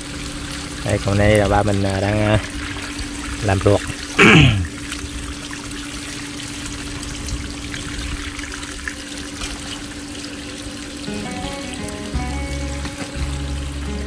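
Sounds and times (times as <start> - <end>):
water trickling and pouring: 0.0 - 14.0
low hum: 11.0 - 14.0.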